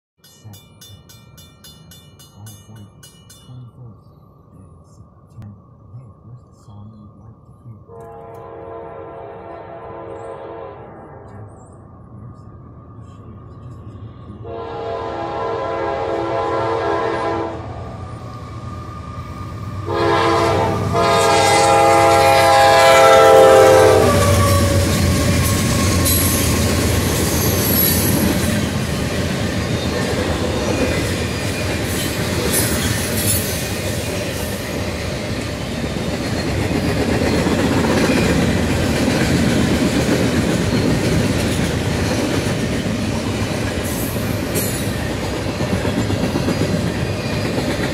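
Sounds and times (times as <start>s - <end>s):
locomotive horn blasts: 7.9s - 11.4s, 14.4s - 17.7s, 19.8s - 25.4s.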